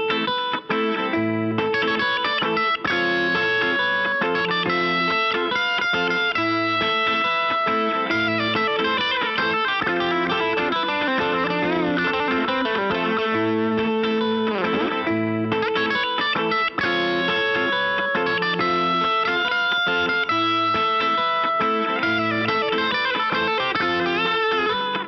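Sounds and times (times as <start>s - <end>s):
electric guitar lead lines: 0.0s - 25.0s
low guitar riff: 0.0s - 25.0s.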